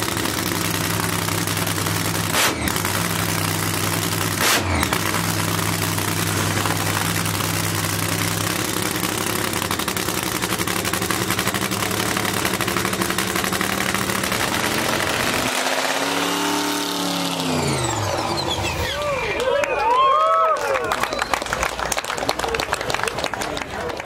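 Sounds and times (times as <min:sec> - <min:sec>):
car engine idling: 0:00.0 - 0:19.2
vehicle engine note rising and falling: 0:00.0 - 0:19.6.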